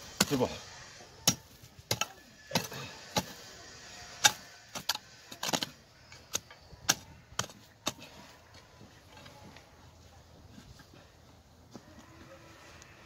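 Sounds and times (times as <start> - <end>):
hoe striking stony soil: 0.0 - 0.6, 1.2 - 8.2.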